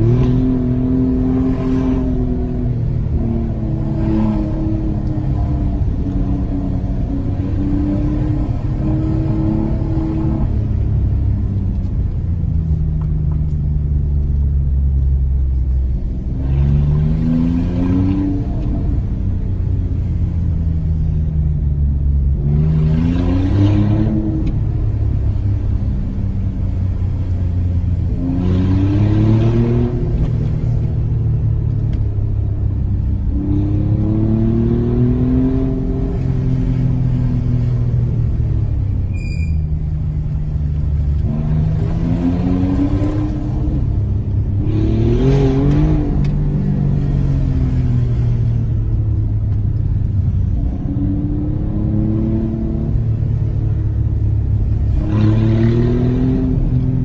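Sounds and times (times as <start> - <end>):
low road rumble: 0.0 - 57.0
car engine accelerating: 39.8 - 57.0.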